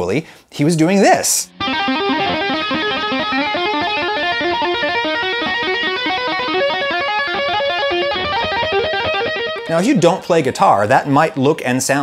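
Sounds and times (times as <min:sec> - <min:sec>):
electric guitar tapped arpeggio: 0:01.6 - 0:09.8.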